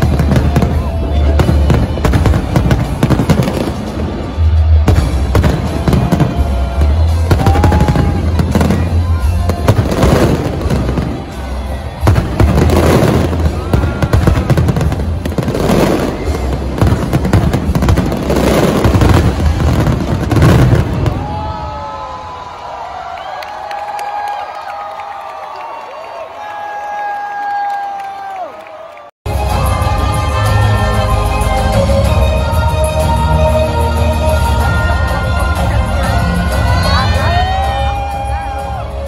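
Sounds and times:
fireworks bangs and crackling: 0.0 - 22.2
music playing: 0.0 - 22.4, 29.3 - 39.0.

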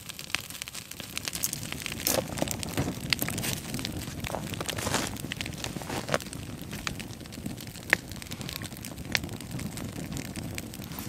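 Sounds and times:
campfire crackling: 0.0 - 11.0
sharp fire pops: 0.0 - 11.0.

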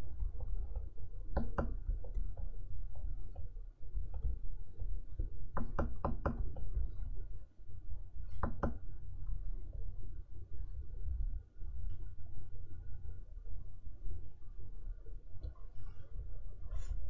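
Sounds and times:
low steady rumble: 0.0 - 17.0
stylus tapping on a screen: 0.1 - 4.4, 5.2 - 7.1, 8.3 - 8.9.

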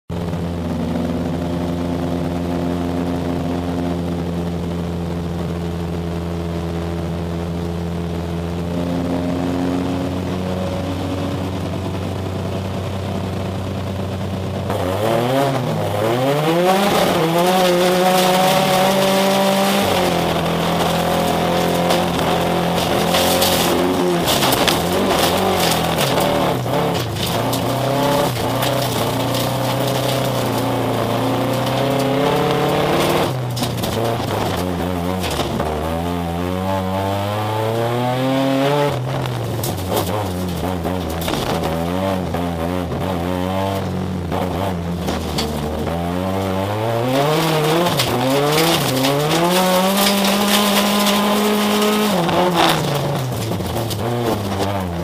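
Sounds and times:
race car engine idling and revving: 0.0 - 55.0
stones hitting car: 14.7 - 36.0, 38.8 - 42.4, 43.8 - 55.0.

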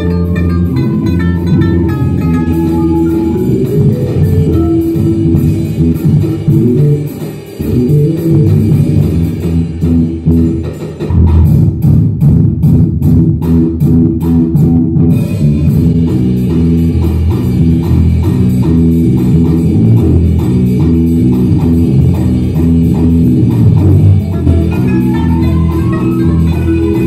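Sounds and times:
plucked string instrument: 0.0 - 7.0, 15.9 - 27.0
bass line: 0.0 - 27.0
drum kit: 0.0 - 27.0.

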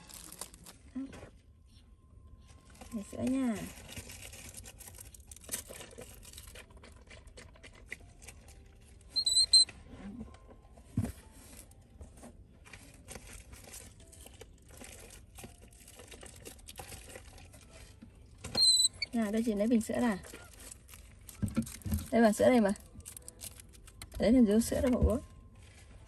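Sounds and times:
loud high squeak: 9.2 - 9.7, 18.4 - 19.2.

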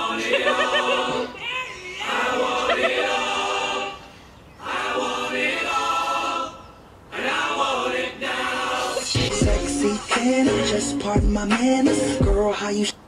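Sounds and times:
voices singing a cappella: 0.0 - 13.0.

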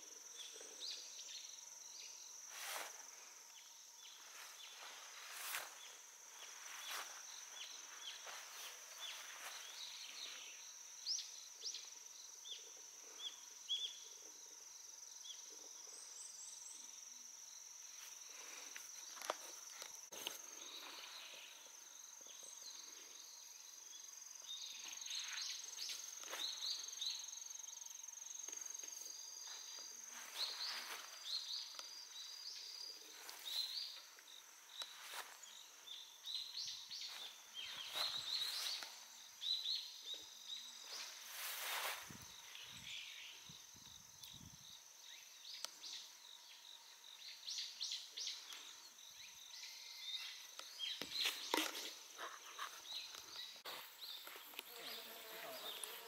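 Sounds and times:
insects trilling: 0.0 - 56.0
footsteps through vegetation: 2.5 - 3.2, 4.2 - 10.4, 29.4 - 31.5, 34.7 - 35.7, 37.1 - 39.1, 40.9 - 42.3.

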